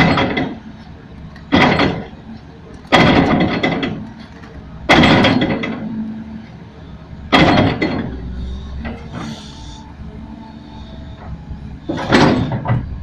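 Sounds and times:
excavator bucket clanking: 0:00.0 - 0:06.0, 0:07.3 - 0:09.6, 0:11.2 - 0:13.0
excavator engine running: 0:00.0 - 0:13.0.

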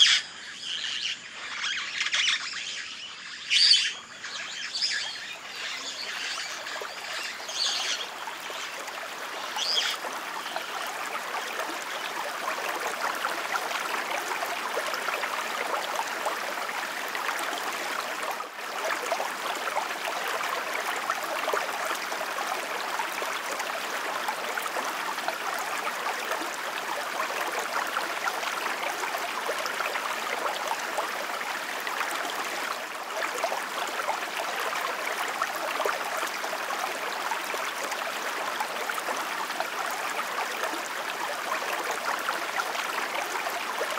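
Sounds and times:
bird chirps: 0:00.0 - 0:08.0
running water rushing: 0:00.0 - 0:43.9.

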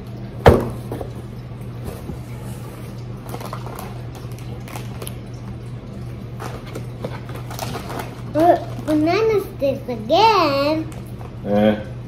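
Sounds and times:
steady low hum: 0:00.0 - 0:12.0
snack packets rustling in box: 0:06.4 - 0:09.1.

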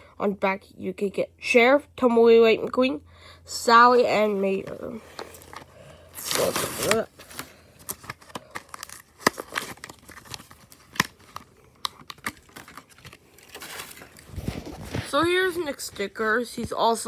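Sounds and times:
cardboard tearing: 0:05.1 - 0:15.2
plastic packaging crinkling: 0:05.1 - 0:15.9.

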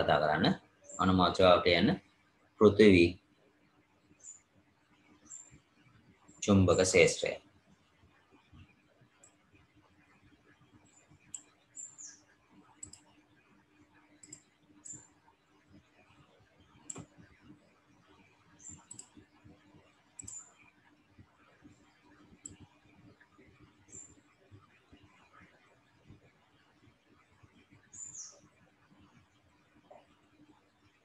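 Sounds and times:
faint low hum: 0:00.0 - 0:31.0
computer mouse clicks: 0:11.3 - 0:13.1, 0:14.2 - 0:15.0, 0:16.8 - 0:17.2, 0:18.6 - 0:19.2, 0:20.2 - 0:20.6, 0:22.4 - 0:22.7.

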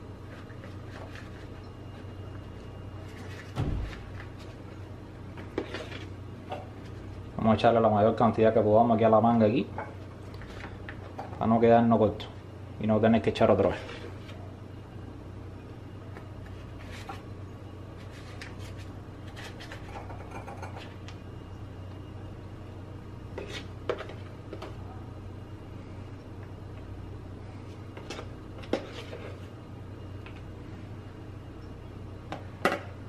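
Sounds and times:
steady low hum: 0:00.0 - 0:33.0
spoon scraping foam: 0:23.4 - 0:24.1.

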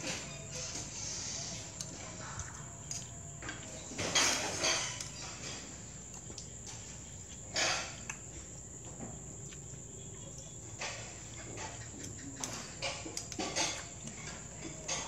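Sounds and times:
crickets chirping: 0:00.0 - 0:15.0
loud clatter of dishes: 0:03.8 - 0:05.9, 0:07.5 - 0:08.0, 0:10.7 - 0:15.0
metal cutlery clinking on ceramic: 0:04.0 - 0:05.6, 0:12.4 - 0:15.0.

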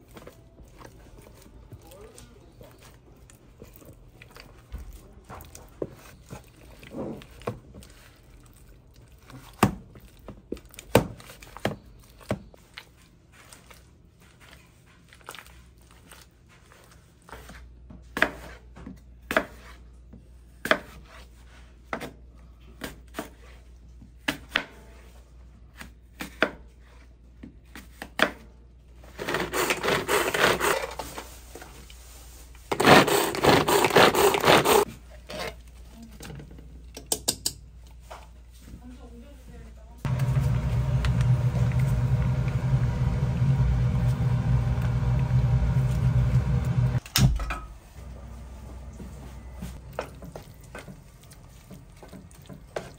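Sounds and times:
rough scraping: 0:32.7 - 0:35.4
tools clicking against baking molds: 0:36.9 - 0:37.6.

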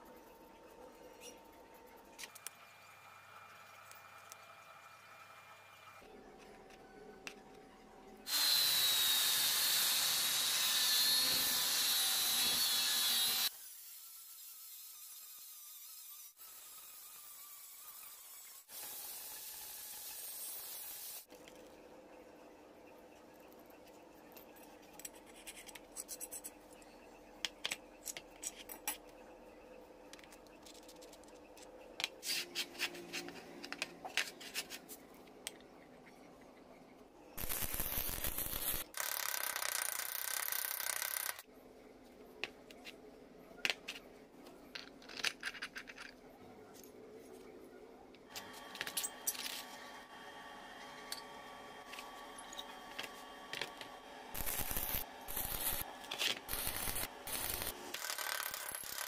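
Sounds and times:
angle grinder cutting steel: 0:08.3 - 0:15.1, 0:54.4 - 0:55.9, 0:56.5 - 0:59.0
metal parts clicking and scraping: 0:27.7 - 0:29.1, 0:44.7 - 0:46.2, 0:54.4 - 0:59.0.

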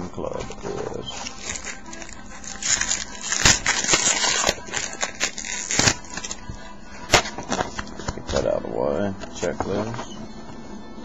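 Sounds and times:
foil wrapper tearing and crinkling: 0:01.1 - 0:06.4.

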